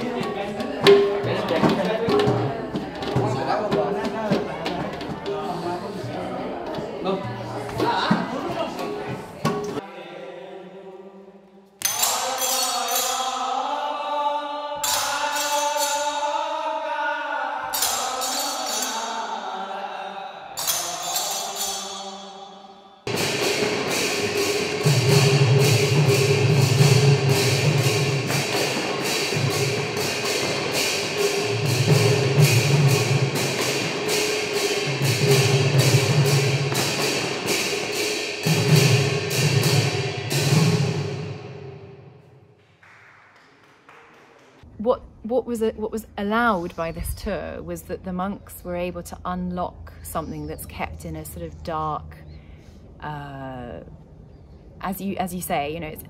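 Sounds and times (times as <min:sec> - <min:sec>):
barrel drums: 0:00.0 - 0:06.1, 0:06.7 - 0:09.8, 0:23.1 - 0:42.1
voices chanting long notes: 0:09.8 - 0:40.2
small hand cymbals: 0:20.6 - 0:22.4
ringing cymbal crash: 0:20.6 - 0:42.4.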